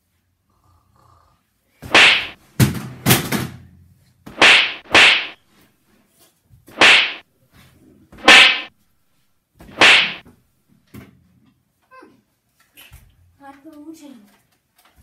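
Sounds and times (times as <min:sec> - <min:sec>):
cushion swishing and whacking: 0:01.8 - 0:02.4, 0:04.3 - 0:05.4, 0:06.7 - 0:07.2, 0:08.2 - 0:08.7, 0:09.6 - 0:10.2.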